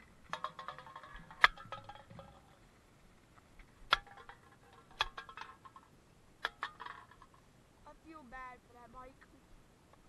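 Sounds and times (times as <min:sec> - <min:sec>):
rod tapping on concrete: 0:00.3 - 0:02.6, 0:03.9 - 0:07.3.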